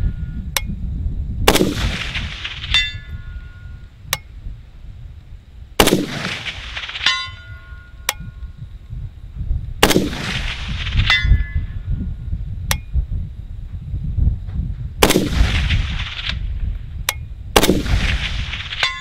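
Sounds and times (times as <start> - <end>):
rifle shots: 1.5 - 3.1, 5.8 - 7.4, 9.8 - 11.2, 15.0 - 16.4, 17.6 - 19.0
faint ring of steel target: 2.4 - 4.3, 6.9 - 8.4, 10.9 - 11.9.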